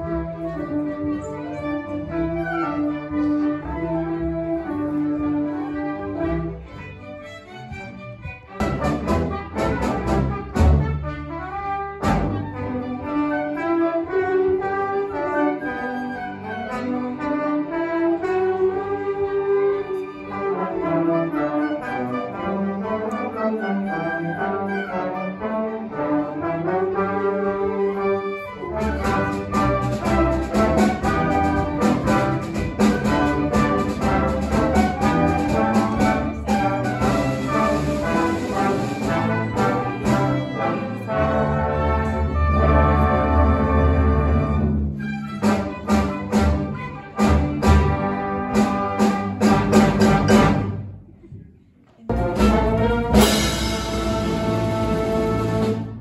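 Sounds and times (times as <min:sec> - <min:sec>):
brass-led melody: 0:00.0 - 0:07.8, 0:08.5 - 0:50.9, 0:52.1 - 0:56.0
symphony orchestra playing: 0:00.0 - 0:51.2, 0:52.0 - 0:56.0.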